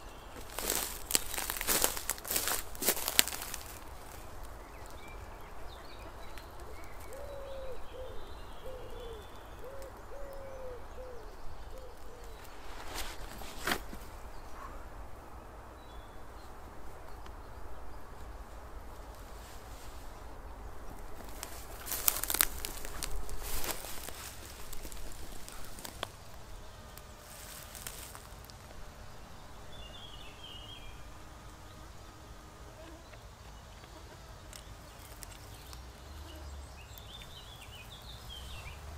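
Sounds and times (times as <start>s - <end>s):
small birds chirping: 0.0s - 38.9s
plant stems snapping and rustling: 0.4s - 5.0s, 11.7s - 14.1s, 20.9s - 26.3s, 26.9s - 28.7s, 34.5s - 35.8s
pigeon cooing: 6.6s - 12.5s
brief rustle: 12.0s - 14.2s.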